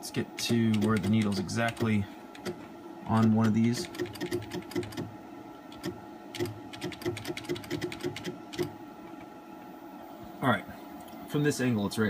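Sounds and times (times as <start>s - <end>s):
stepper motor buzzing ticks: 0.4s - 5.1s.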